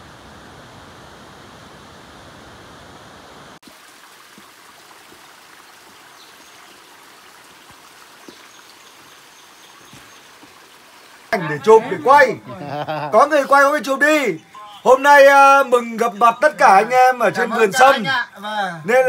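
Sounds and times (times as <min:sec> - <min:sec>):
stream running over rocks: 0:00.0 - 0:19.0.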